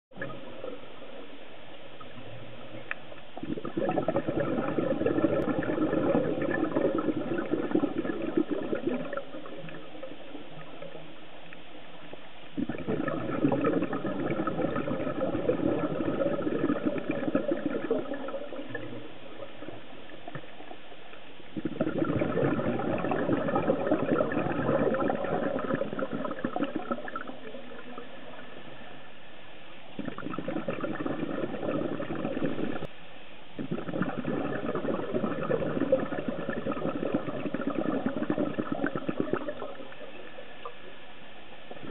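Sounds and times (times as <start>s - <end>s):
quiet steady hiss: 0.1s - 41.9s
underwater exhaled air bubbling: 1.9s - 11.6s, 12.5s - 29.2s, 29.9s - 32.9s, 33.6s - 41.9s.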